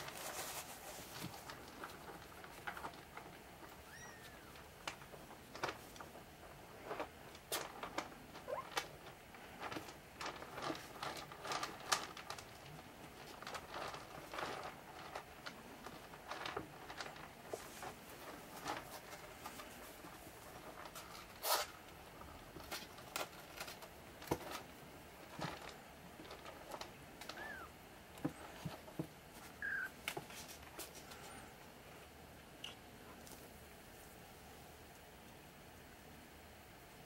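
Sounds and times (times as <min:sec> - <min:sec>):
faint squeaks: 0:03.8 - 0:04.6, 0:08.4 - 0:08.7, 0:29.5 - 0:30.0.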